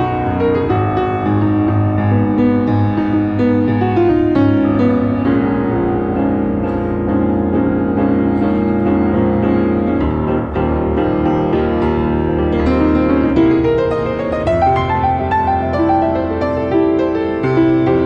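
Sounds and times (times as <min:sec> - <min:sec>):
solo jazz piano: 0:00.0 - 0:18.0.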